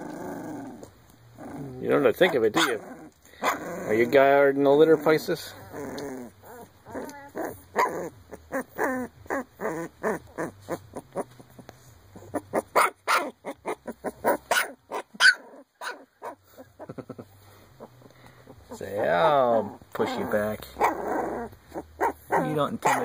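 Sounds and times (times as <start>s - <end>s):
puppy barking and yapping: 2.2s - 4.0s, 5.5s - 16.9s, 17.8s - 23.0s.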